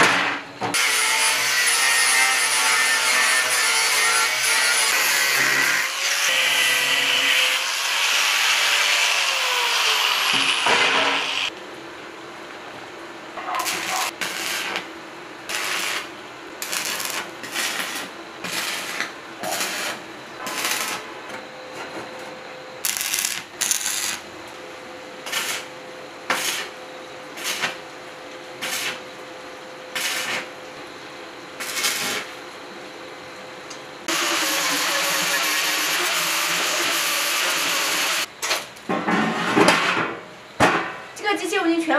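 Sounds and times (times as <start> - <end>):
angle grinder cutting sheet metal: 0.8 - 11.5, 34.1 - 38.3
arc welder crackling: 0.8 - 11.6, 13.4 - 21.3, 22.8 - 29.3, 29.9 - 30.6, 31.6 - 32.6.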